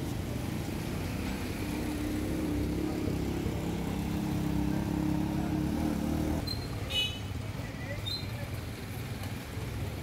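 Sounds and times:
auto-rickshaw engine running: 0.0 - 6.8
street traffic: 0.0 - 10.0.

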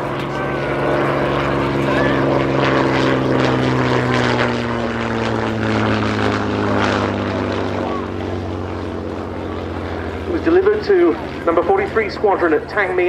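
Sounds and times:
propeller plane flying past: 0.0 - 13.0.

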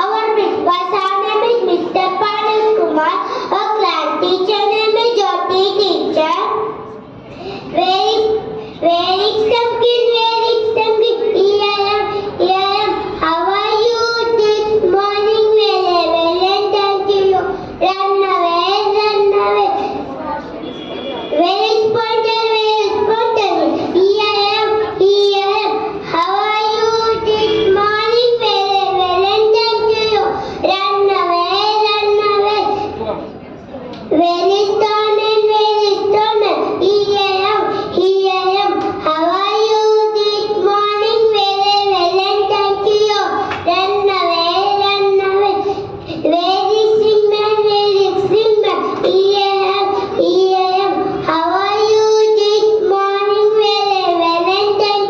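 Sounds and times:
girl singing into a microphone: 0.0 - 20.5, 21.3 - 33.0, 34.1 - 55.0
girl singing into microphone: 34.1 - 55.0.

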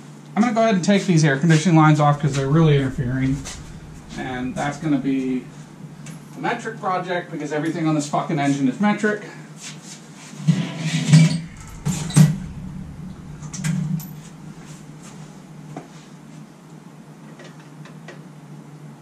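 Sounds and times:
steady low hum: 1.1 - 8.7, 11.1 - 16.9.

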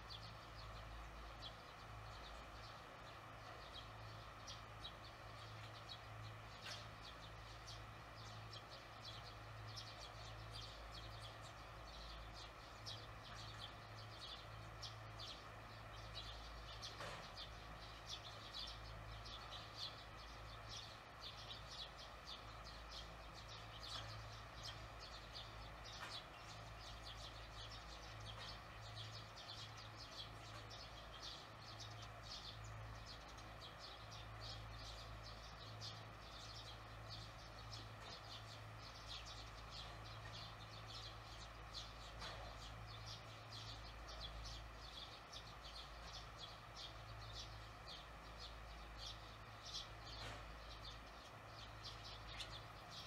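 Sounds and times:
swallows twittering: 0.0 - 53.0.

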